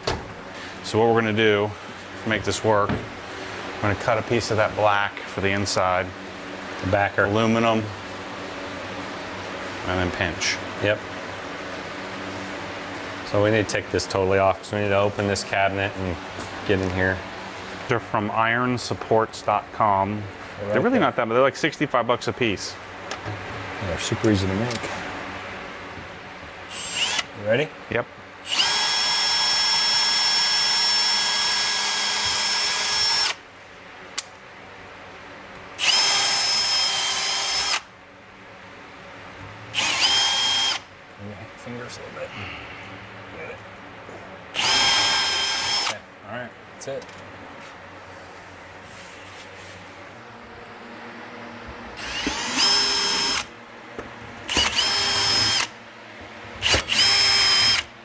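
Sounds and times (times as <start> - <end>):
cordless drill whining: 26.7 - 27.3, 28.5 - 33.4, 35.8 - 37.9, 39.8 - 40.9, 44.6 - 46.0, 52.0 - 53.5, 54.5 - 55.7, 56.6 - 57.9.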